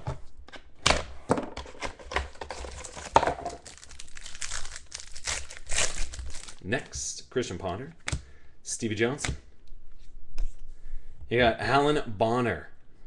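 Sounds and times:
plastic wrapper tearing and crinkling: 2.2 - 6.9.

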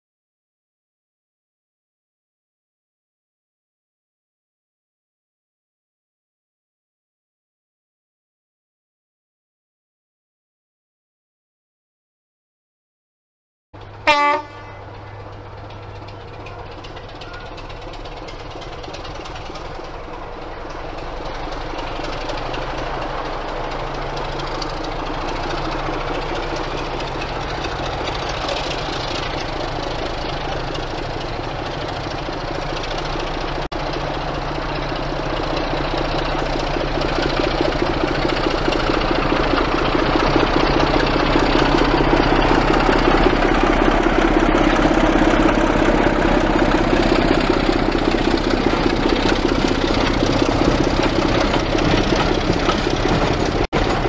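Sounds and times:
diesel locomotive engine running: 13.8 - 54.0.

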